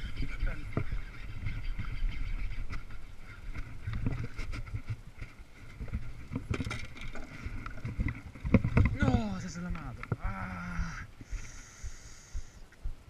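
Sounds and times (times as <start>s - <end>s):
wind rumble on microphone: 0.0s - 13.0s
fishing gear knocking and rubbing: 0.4s - 10.3s.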